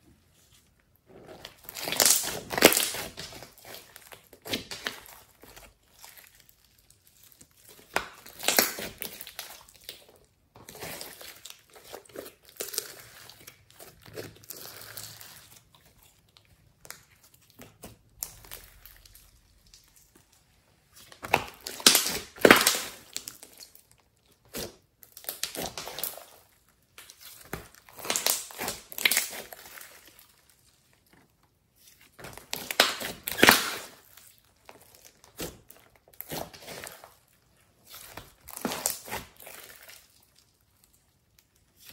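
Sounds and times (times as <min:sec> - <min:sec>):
slime squishing by hand: 0:00.2 - 0:41.9.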